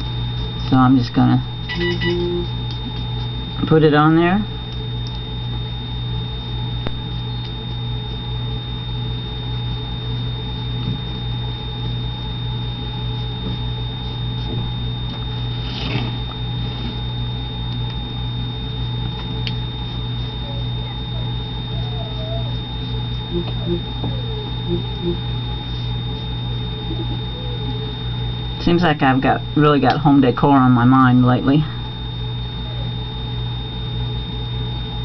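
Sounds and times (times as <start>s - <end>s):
electrical hum with high whine: 0.0s - 35.0s
small squeaks: 1.7s - 2.4s.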